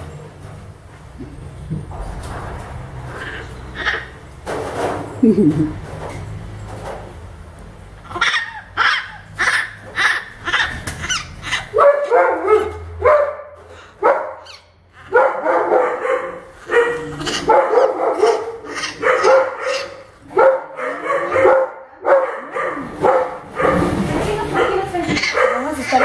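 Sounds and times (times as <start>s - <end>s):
baby monkey distress calls: 3.1s - 4.2s, 8.0s - 11.8s, 14.4s - 15.1s, 17.0s - 17.5s, 18.7s - 19.0s, 25.0s - 26.0s.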